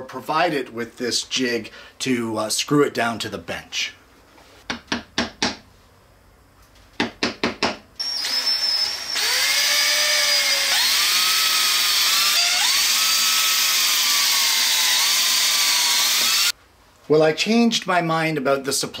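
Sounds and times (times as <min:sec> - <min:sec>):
electric drill boring: 0:08.0 - 0:16.6.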